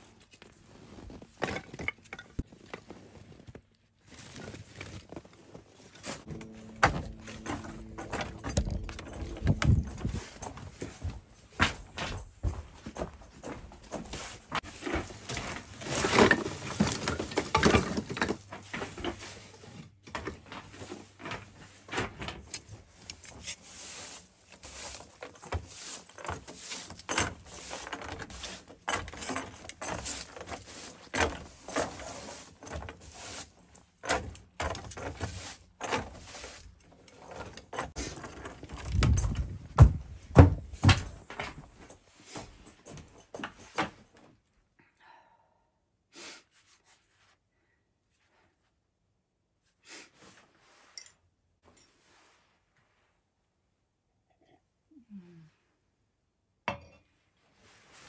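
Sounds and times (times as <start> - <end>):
handling clicks and scrapes: 7.3 - 39.7.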